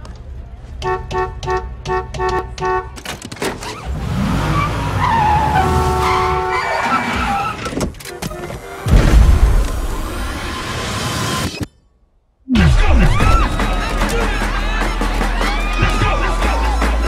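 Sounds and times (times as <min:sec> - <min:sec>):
car tires squealing: 0:03.6 - 0:08.8
horn-like notes: 0:05.6 - 0:07.0.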